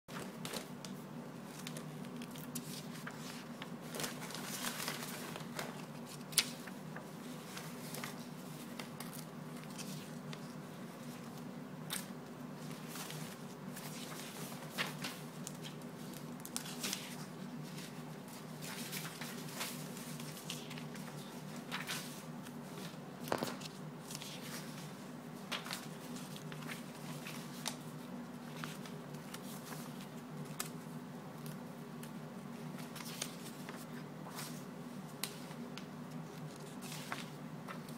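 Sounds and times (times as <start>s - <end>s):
paper rustling in plastic bin: 0.1s - 10.2s.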